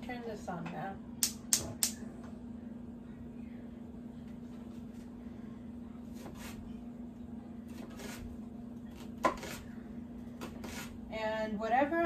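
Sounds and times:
steady low hum: 0:00.0 - 0:12.0
knife cutting onion on board: 0:06.1 - 0:06.6, 0:07.7 - 0:08.3, 0:08.9 - 0:09.7, 0:10.4 - 0:11.0.

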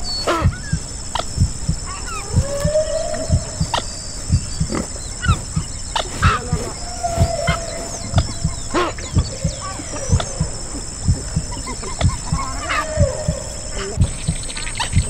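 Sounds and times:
heartbeat thumping: 0:00.0 - 0:15.0
humpback whale calls: 0:00.0 - 0:15.0
high animal squeaks: 0:00.1 - 0:15.0.

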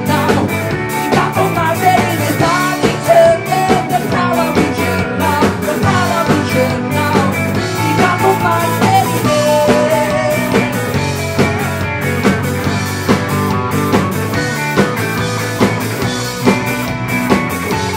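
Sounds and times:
man singing: 0:00.0 - 0:11.8
drum kit beat: 0:00.0 - 0:17.9
electric guitars: 0:00.0 - 0:17.9.

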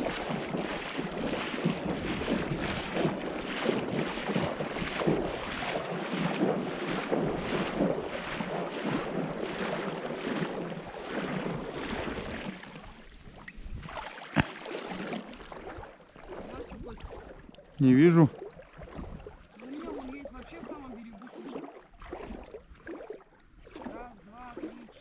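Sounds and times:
wind buffeting microphone: 0:00.0 - 0:12.5, 0:13.2 - 0:14.0, 0:18.8 - 0:19.4
water splashing against boat hull: 0:00.0 - 0:25.0.

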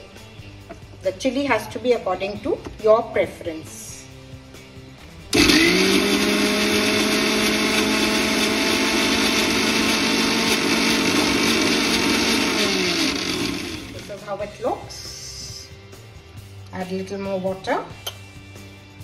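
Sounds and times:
mixer grinder motor running: 0:05.3 - 0:14.2.

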